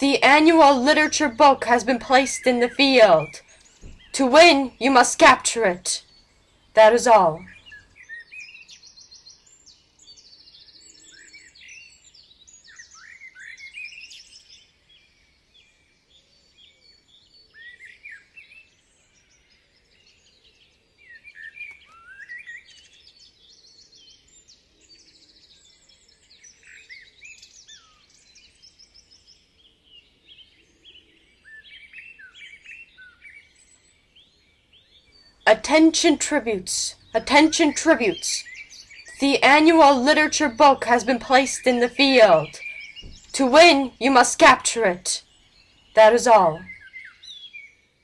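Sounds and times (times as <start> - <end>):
songbirds chirping: 0.0 - 48.0.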